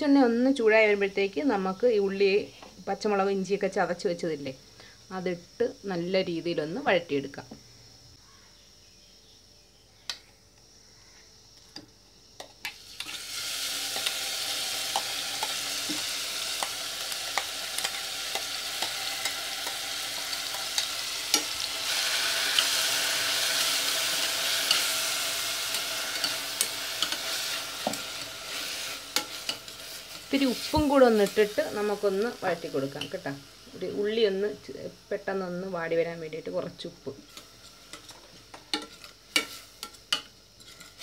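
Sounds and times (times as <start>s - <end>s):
food sizzling in hot oil: 11.4s - 41.0s
spoon scraping a pot: 37.3s - 41.0s.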